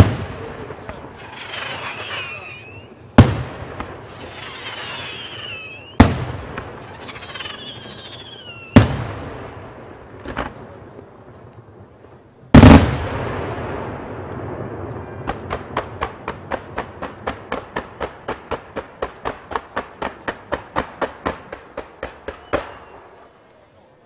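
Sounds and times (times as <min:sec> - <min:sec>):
fireworks bangs: 0:00.0 - 0:23.5
wavering high whistle: 0:01.4 - 0:03.0, 0:04.2 - 0:06.0, 0:06.9 - 0:08.8, 0:22.4 - 0:23.1.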